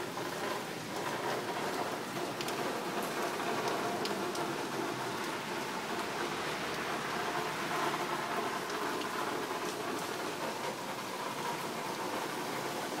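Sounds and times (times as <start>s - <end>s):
rain falling on leafy trees: 0.0s - 13.0s.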